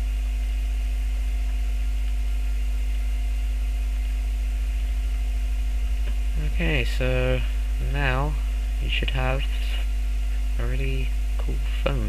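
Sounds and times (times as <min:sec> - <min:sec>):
electrical mains hum: 0:00.0 - 0:12.0.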